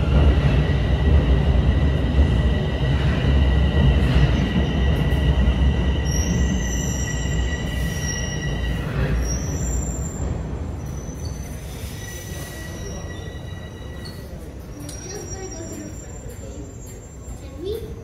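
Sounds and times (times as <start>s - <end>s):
subway train rumble: 0.0s - 18.0s
train brakes squealing: 4.2s - 18.0s.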